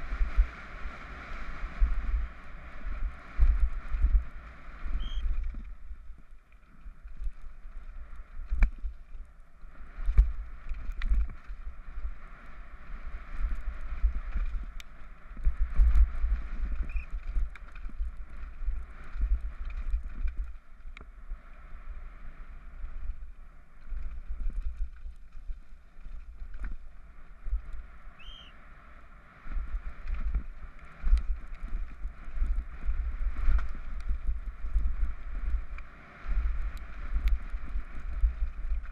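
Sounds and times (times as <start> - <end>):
wind buffeting microphone: 0.0 - 38.9
bike rattling over rocks: 13.3 - 20.8, 23.8 - 27.0, 29.6 - 35.8, 36.4 - 38.9.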